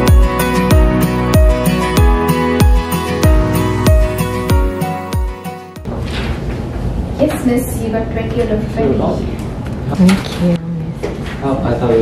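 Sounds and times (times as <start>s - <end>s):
instrumental music with steady beat: 0.0s - 5.9s.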